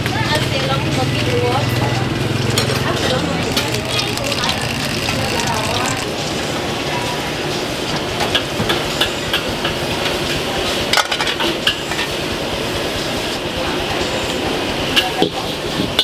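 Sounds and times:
utensils clinking against cookware: 1.4s - 6.6s.

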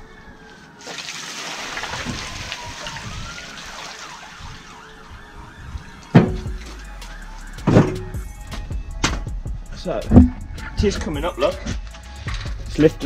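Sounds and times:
slurry splashing onto paving: 0.8s - 5.0s
mixer drum knocking: 10.1s - 10.4s.

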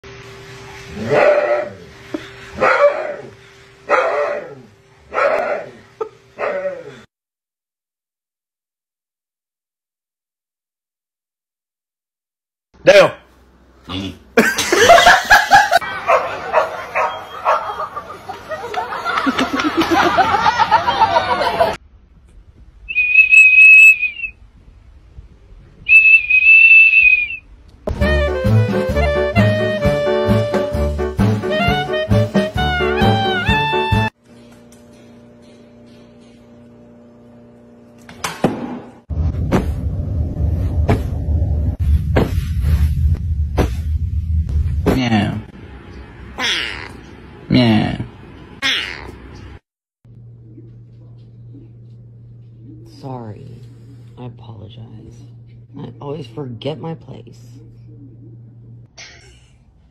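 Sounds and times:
high plastic whistle blasts: 22.9s - 24.3s, 25.9s - 27.5s.

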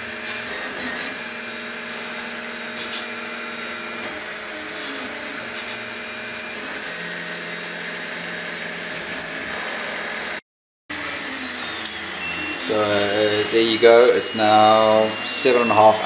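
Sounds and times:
stepper motors whining: 0.0s - 16.0s
cooling fans hissing: 11.0s - 16.0s.

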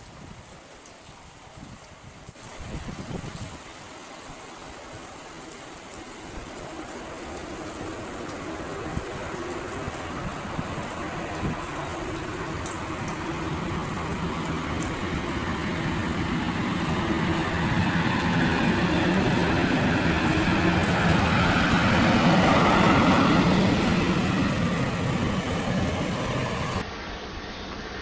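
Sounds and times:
jet engines roaring at takeoff: 4.7s - 28.0s.

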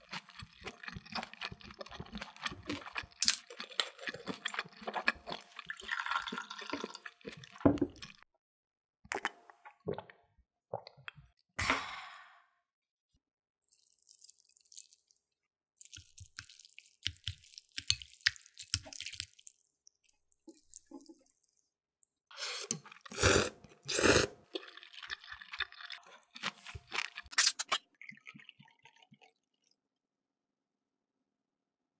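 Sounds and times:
wet eating sounds: 0.0s - 8.2s, 15.8s - 21.6s, 22.4s - 29.4s.

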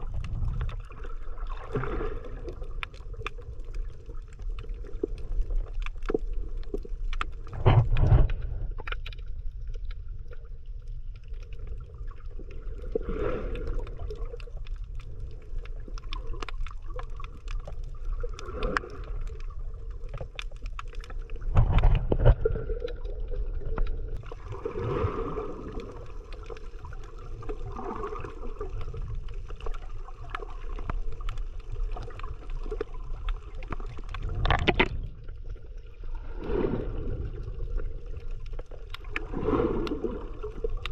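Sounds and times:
muffled underwater rumble: 0.0s - 40.9s
water sloshing: 11.9s - 40.9s
faint clicks: 40.7s - 40.9s.

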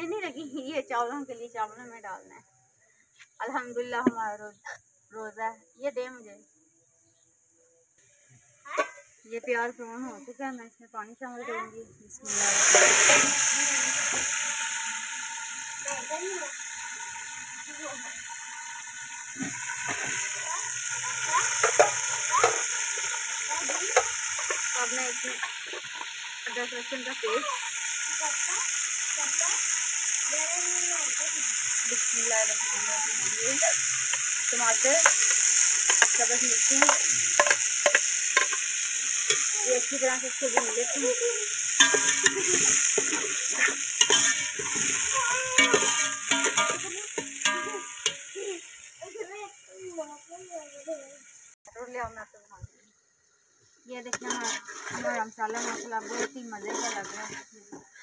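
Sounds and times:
onions sizzling in hot oil: 0.0s - 2.4s, 3.4s - 4.5s, 8.0s - 58.0s
metal spatula scraping a pot: 12.3s - 14.4s, 18.2s - 28.1s, 32.0s - 48.4s, 54.1s - 58.0s
pot ringing: 21.0s - 28.3s, 32.2s - 48.5s
ladle clinking against metal pot: 45.6s - 48.2s.

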